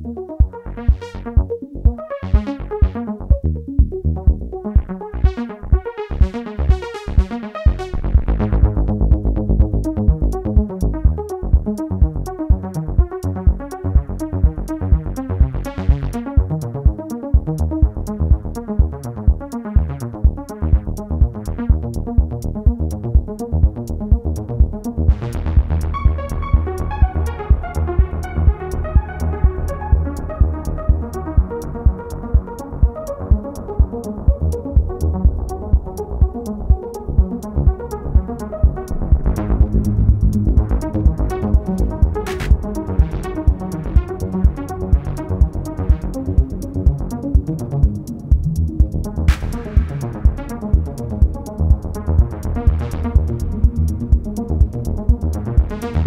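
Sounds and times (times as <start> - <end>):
drum machine beat: 0.0 - 56.0
heavy synth bass: 0.0 - 56.0
ticking hi-hat: 3.8 - 56.0
repeating synth patterns: 36.8 - 44.6.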